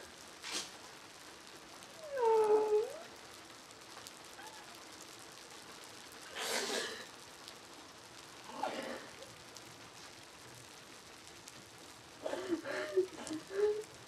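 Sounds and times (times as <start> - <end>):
whining vocal cry: 1.9 - 3.1, 4.3 - 4.8.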